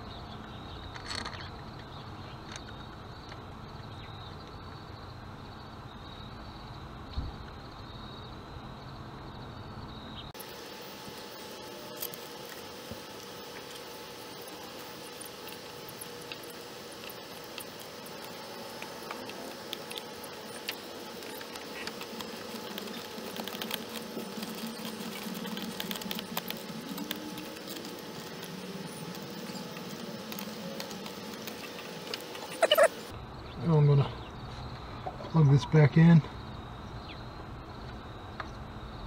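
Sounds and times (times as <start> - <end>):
faint clicks and scratches: 12.0 - 33.1.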